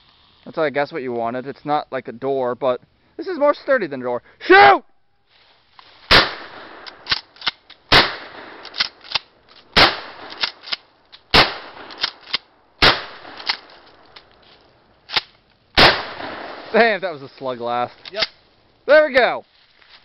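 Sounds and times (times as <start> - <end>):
loud shotgun shots: 6.1 - 7.2, 7.9 - 13.7, 15.8 - 16.8.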